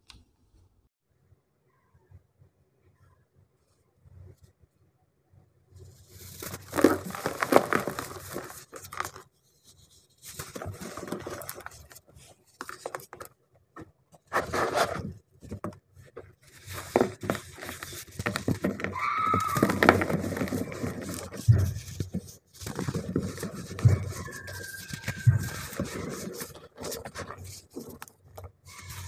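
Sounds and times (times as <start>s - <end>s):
hands crumbling chalky blocks: 6.2s - 9.3s, 16.4s - 29.0s
block breaking with squeak: 17.2s - 21.7s, 23.0s - 26.3s.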